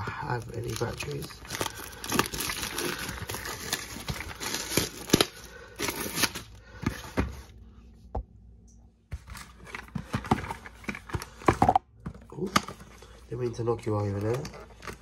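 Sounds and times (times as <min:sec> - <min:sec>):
cardboard rustling and scraping: 0:09.1 - 0:13.0.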